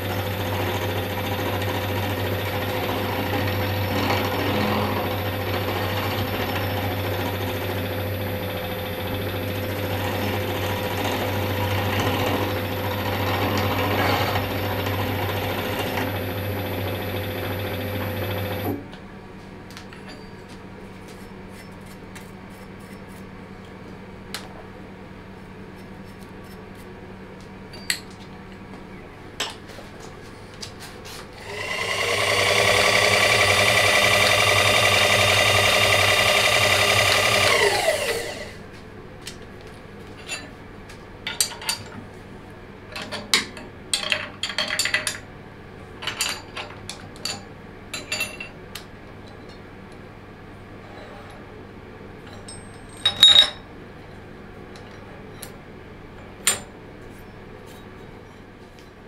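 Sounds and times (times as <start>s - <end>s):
workshop machine motor running: 0.0s - 19.5s, 28.6s - 40.4s
power tool motor whining: 31.4s - 38.6s.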